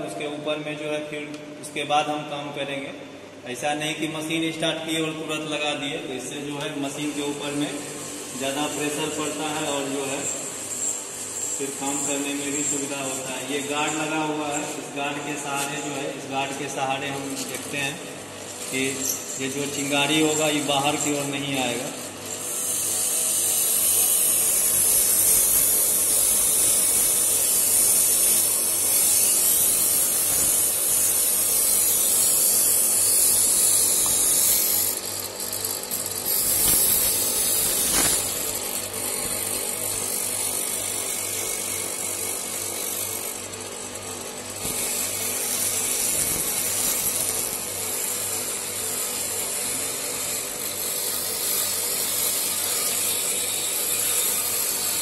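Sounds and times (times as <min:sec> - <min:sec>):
bench grinder motor hum: 0:06.6 - 0:55.0
abrasive hiss on steel: 0:36.2 - 0:38.4.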